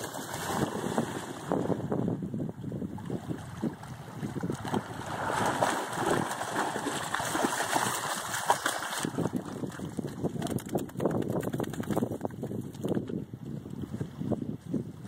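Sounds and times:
dog splashing through water: 3.3s - 12.0s.

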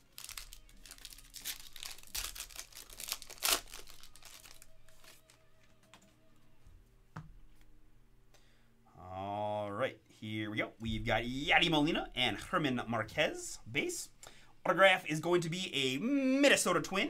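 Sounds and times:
wrapper crinkling and tearing: 0.0s - 5.8s
cards being handled: 0.1s - 6.2s.

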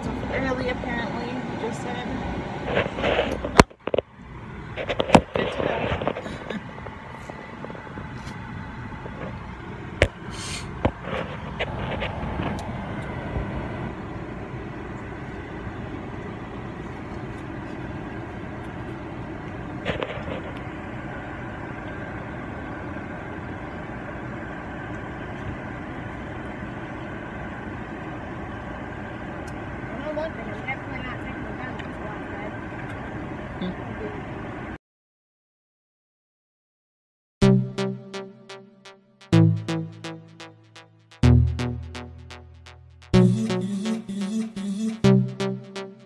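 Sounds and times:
car hum from inside cabin: 0.0s - 34.8s.

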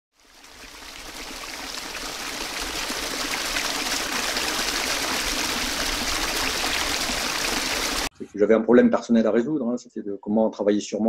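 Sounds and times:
running water rushing: 0.1s - 8.1s.

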